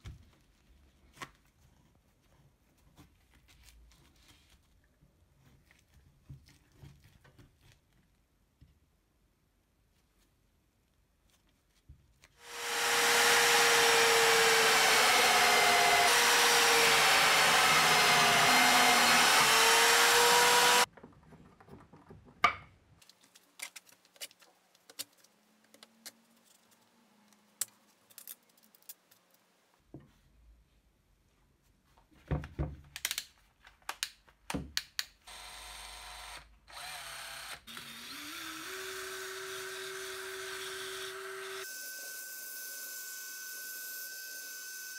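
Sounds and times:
cordless drill spinning drum sander: 12.4s - 20.9s, 35.3s - 42.1s
power tool running: 12.4s - 20.9s
clicks and knocks of handled parts: 20.9s - 29.5s.

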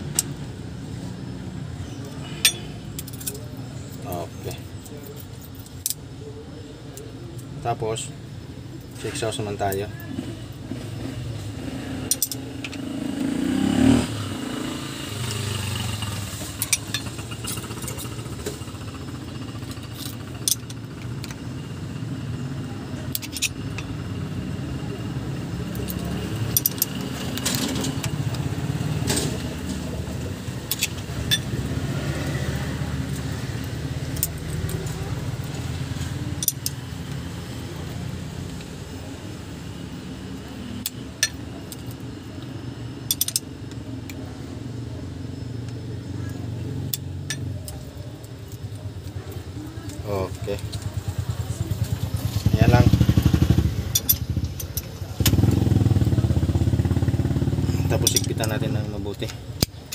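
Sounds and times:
small metal tool clicks: 12.0s - 12.8s, 23.1s - 23.9s, 25.7s - 28.2s, 30.7s - 31.5s, 36.4s - 37.2s, 43.1s - 44.2s, 53.9s - 55.4s, 58.0s - 59.9s.

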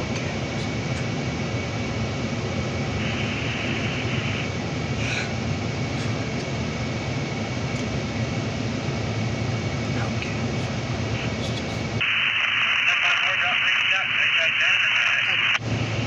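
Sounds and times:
vehicle cabin rumble and hiss: 0.0s - 16.0s.

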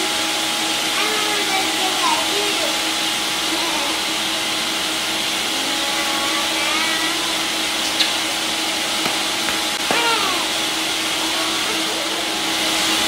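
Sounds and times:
blender running: 0.0s - 13.0s.

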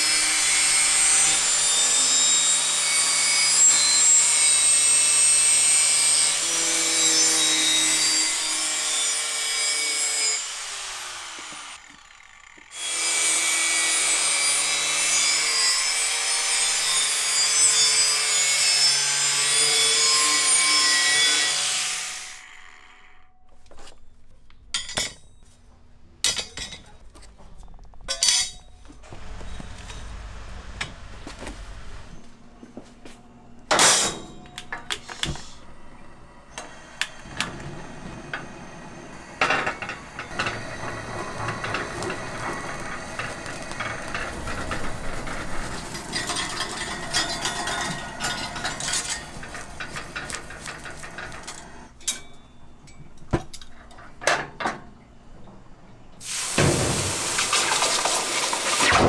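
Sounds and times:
utensils and dishes clinking: 24.7s - 25.6s, 26.2s - 30.2s, 44.2s - 54.7s
beef sizzling on a grill plate: 56.2s - 57.4s.

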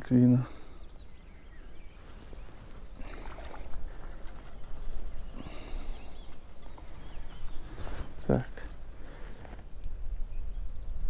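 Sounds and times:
insects chirping: 0.2s - 11.0s
soft rustles: 1.9s - 10.1s.

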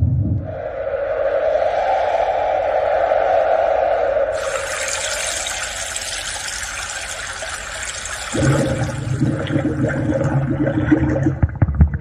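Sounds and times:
rushing water-like noise: 4.4s - 10.4s.

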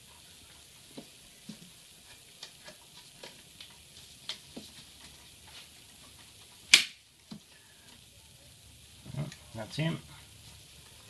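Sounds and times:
small clicks and taps: 2.4s - 5.2s.

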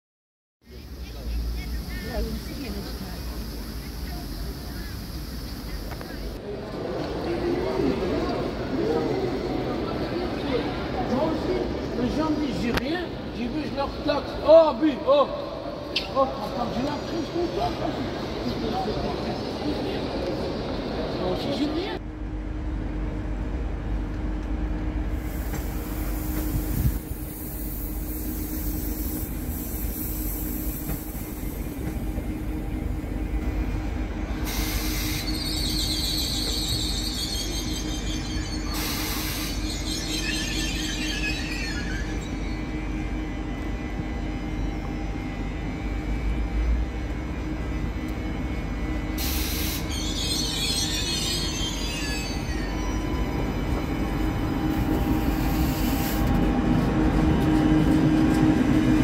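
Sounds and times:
train power car humming: 0.6s - 59.0s
high-pitched wheel squeals: 34.4s - 43.2s, 49.2s - 56.2s.

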